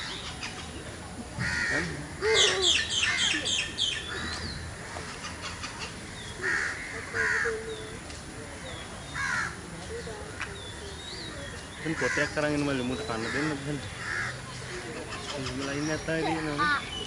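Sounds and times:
crows cawing: 1.4s - 3.4s, 6.4s - 7.6s, 9.2s - 9.6s, 11.8s - 12.4s, 13.2s - 14.9s.

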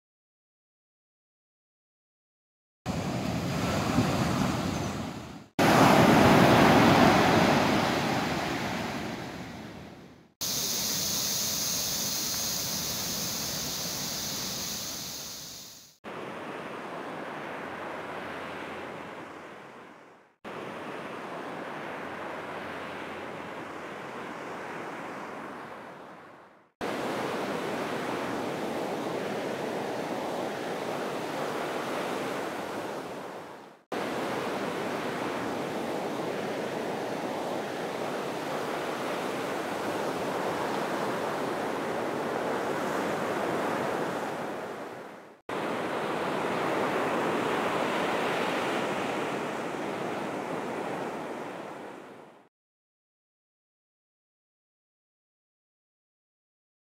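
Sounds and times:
ocean surf on beach: 2.9s - 52.5s
high-pitched hiss: 10.4s - 16.0s.

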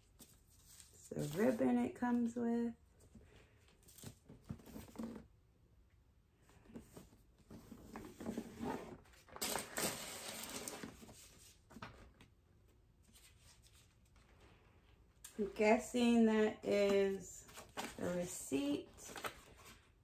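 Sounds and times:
paper rustling: 0.0s - 1.6s.

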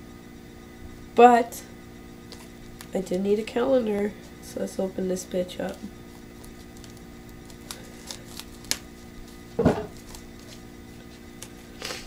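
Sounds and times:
plastic wrapping crinkling: 5.6s - 11.8s.

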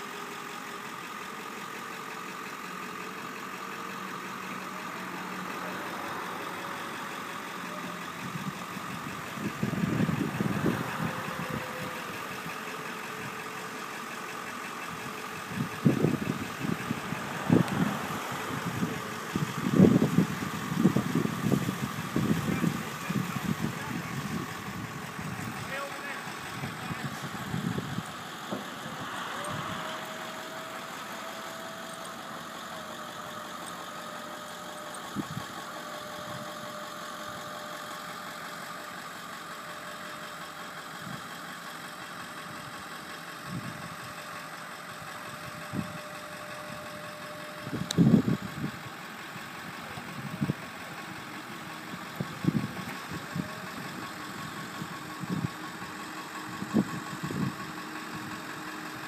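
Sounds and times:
van engine idling: 0.0s - 59.0s
boom hydraulic whine: 5.6s - 13.8s, 15.0s - 38.5s, 43.5s - 48.9s, 49.6s - 59.0s.

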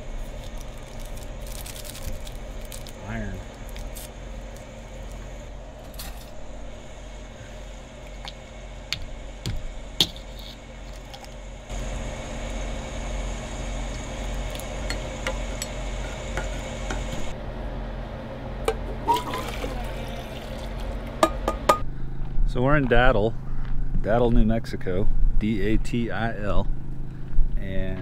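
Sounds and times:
steady electrical hum: 0.0s - 28.0s.

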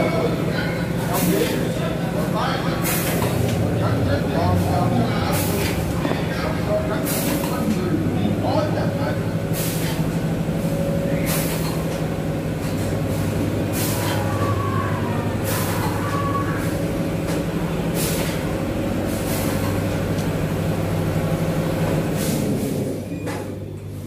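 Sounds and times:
low machine hum: 0.0s - 24.0s
pneumatic air hisses: 11.2s - 11.8s.

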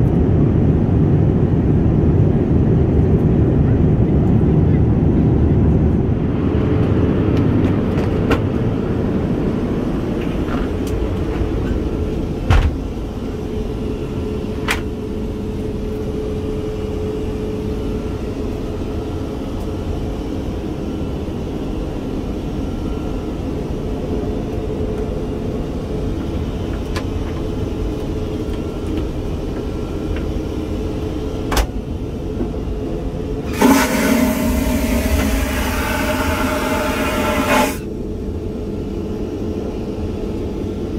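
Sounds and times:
aircraft cabin rumble: 0.0s - 18.4s
loud rushing hiss: 33.5s - 37.9s.

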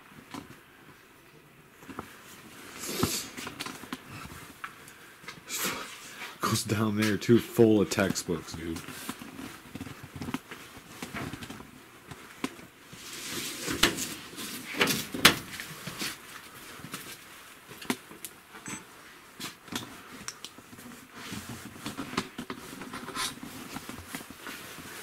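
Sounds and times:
rustling: 19.0s - 25.0s.

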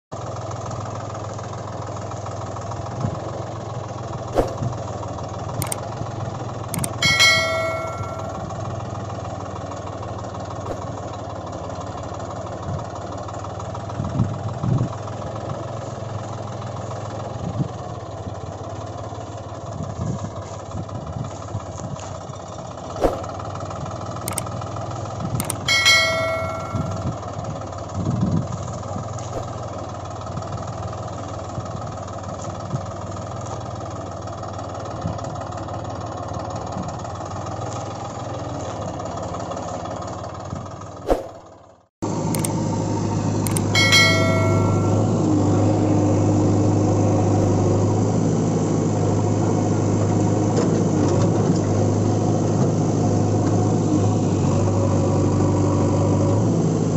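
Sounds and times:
tractor engine idling: 0.2s - 50.6s
brief ringing tone: 6.8s - 8.6s, 25.4s - 27.1s, 43.5s - 45.2s.

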